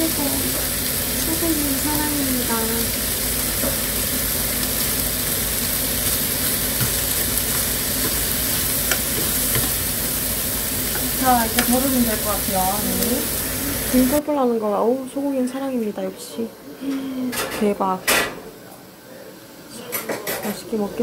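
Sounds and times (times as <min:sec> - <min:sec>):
beef sizzling in a frying pan: 0:00.0 - 0:14.2
metal utensils clicking on pan: 0:06.0 - 0:09.9, 0:10.9 - 0:13.2.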